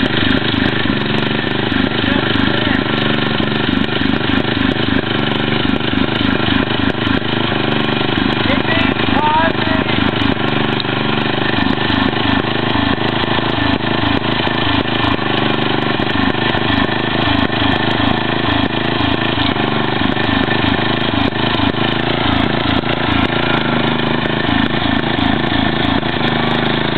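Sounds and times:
lawn tractor engine running: 0.0 - 26.9.

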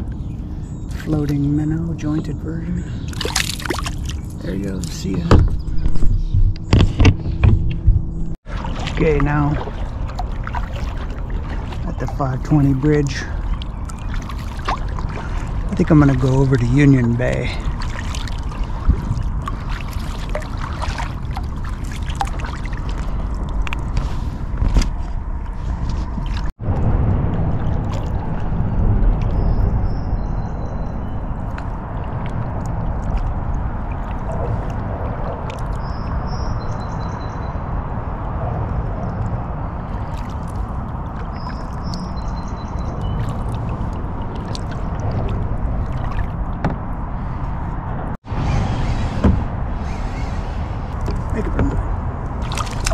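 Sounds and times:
water trickling and splashing: 0.0 - 5.9, 8.4 - 52.9
steady low rumble: 0.0 - 52.9
small drips and clicks: 17.3 - 24.1, 31.3 - 36.0, 38.5 - 46.6, 50.9 - 52.9.

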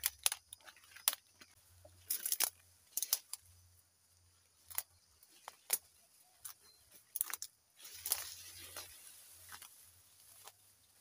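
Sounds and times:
leaves and stems snapping: 0.0 - 3.5, 4.6 - 10.6.

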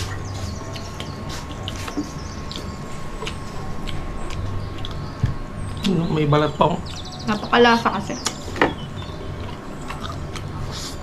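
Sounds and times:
person chewing: 0.0 - 6.0, 9.4 - 11.0
steady electrical hum: 0.0 - 11.0.

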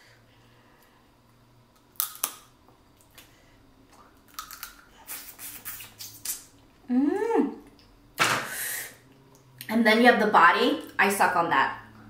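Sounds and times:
crawfish shells cracking: 1.8 - 2.5, 4.3 - 4.8
person humming: 6.9 - 7.7.

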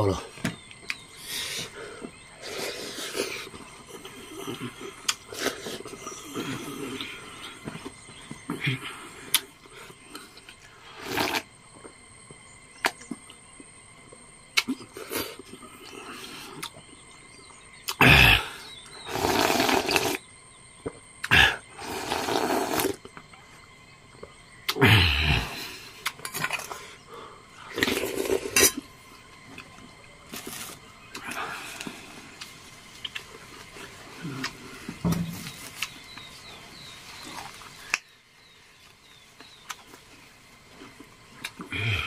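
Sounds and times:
noodle slurp: 11.0 - 11.5, 19.1 - 20.2, 21.8 - 23.0, 27.7 - 28.8
faint mouth and hand noises: 29.5 - 38.1.

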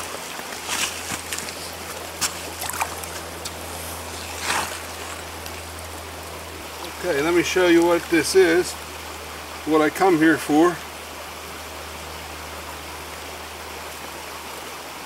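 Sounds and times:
splashes and knocks at water's edge: 0.0 - 5.7
stream running over rocks: 0.0 - 15.0.

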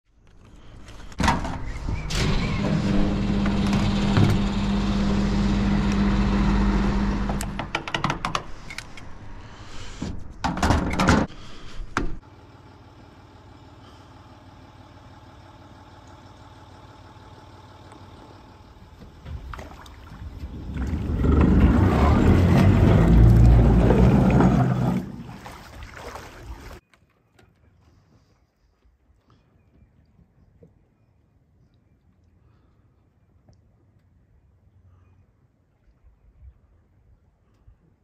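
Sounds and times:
motor humming: 2.1 - 7.7.

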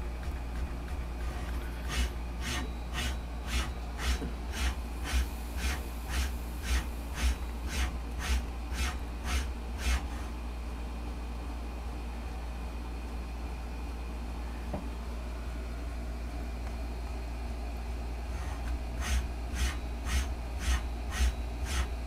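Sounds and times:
steady low hum: 0.0 - 22.0
servo motor rushing strokes: 1.3 - 10.3, 18.3 - 22.0.

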